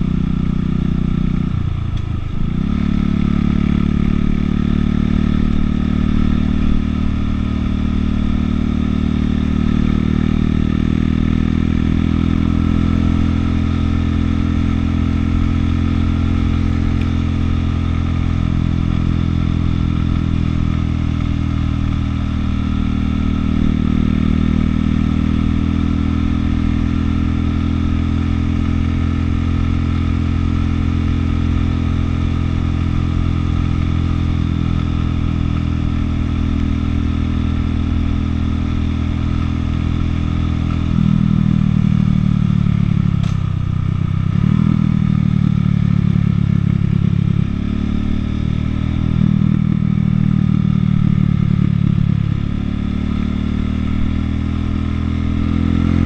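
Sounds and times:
motorcycle engine cruising: 0.0 - 56.0.

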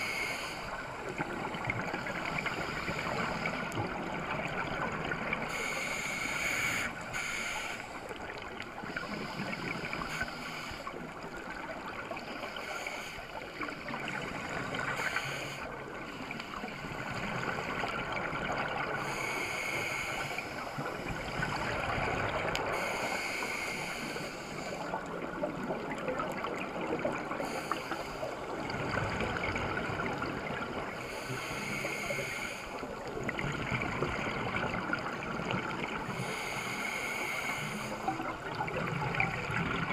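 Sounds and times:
diver breathing through regulator: 0.0 - 0.8, 5.5 - 8.2, 8.8 - 11.0, 18.8 - 22.0, 22.6 - 25.1, 27.2 - 28.5, 30.7 - 33.1, 36.0 - 38.3
gurgling exhaled bubbles: 38.1 - 39.9.

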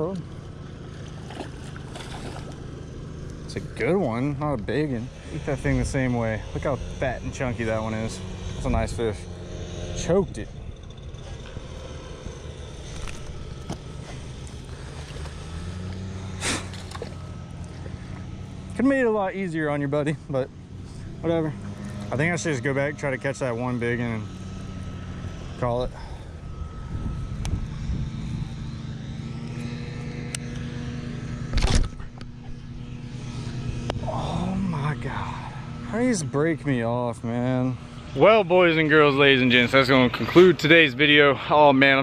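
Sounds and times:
steady low hum: 0.0 - 42.0
fish splashing into water: 1.0 - 2.7
low rumble: 1.2 - 30.0
wind buffeting microphone: 25.6 - 28.8.

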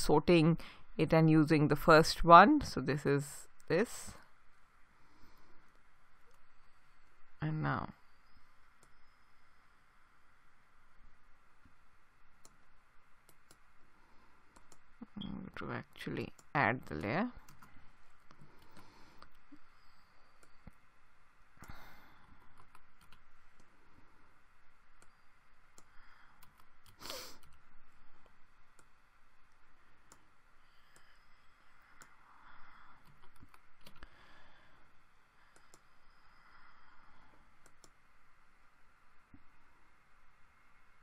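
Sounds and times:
mouse clicks: 14.5 - 14.8, 35.5 - 35.9, 37.6 - 38.0
keyboard typing: 14.5 - 14.9, 16.3 - 19.5, 21.6 - 23.8, 24.9 - 27.6, 33.0 - 34.1.

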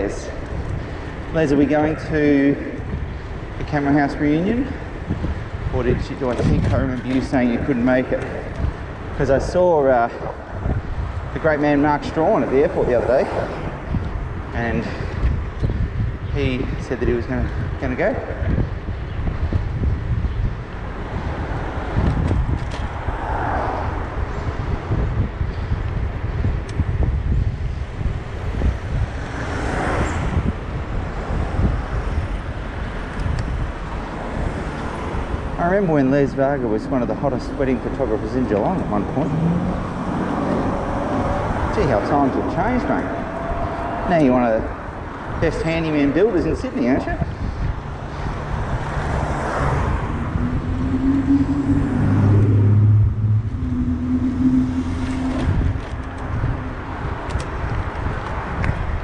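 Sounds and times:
vehicle passing: 0.0 - 15.3, 20.8 - 25.4, 33.5 - 59.0
road traffic: 0.0 - 59.0
wind rumbling on microphone: 0.0 - 59.0.

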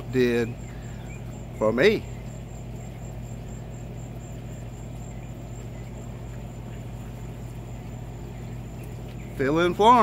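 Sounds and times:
insect chirping: 0.0 - 10.0
steady low hum: 0.0 - 10.0.

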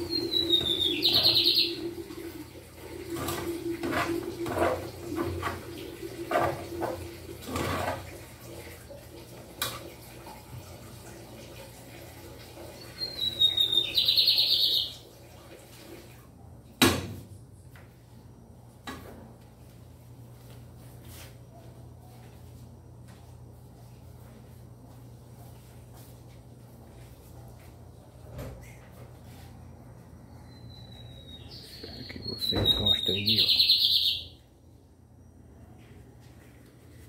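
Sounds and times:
high chirping trill: 0.0 - 1.8.

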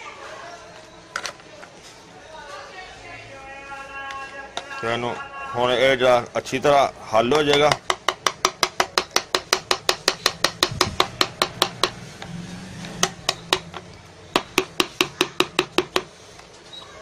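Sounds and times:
metal spatula tapping tray: 7.4 - 12.0.

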